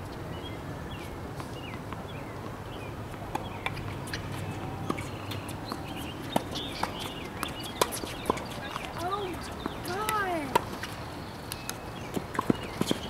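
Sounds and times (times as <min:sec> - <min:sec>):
tennis balls popping: 0:03.2 - 0:10.9.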